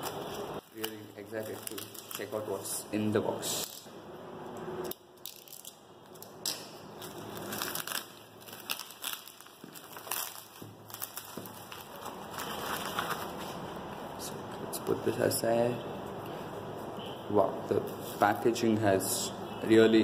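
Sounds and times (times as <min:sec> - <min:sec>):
paper and tape tearing and crumpling: 0:06.9 - 0:13.6.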